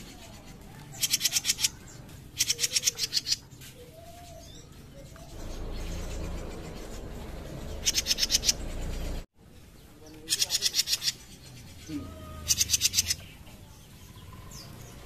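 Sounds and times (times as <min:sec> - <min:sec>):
songbird chattering call: 0:05.2 - 0:09.2, 0:10.2 - 0:13.3
low rumble: 0:05.2 - 0:09.3.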